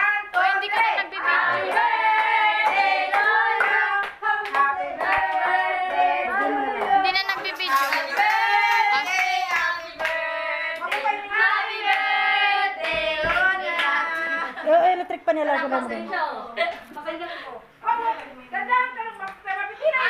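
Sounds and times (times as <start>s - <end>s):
group singing: 0.0s - 14.7s
hands clapping: 1.7s - 10.2s.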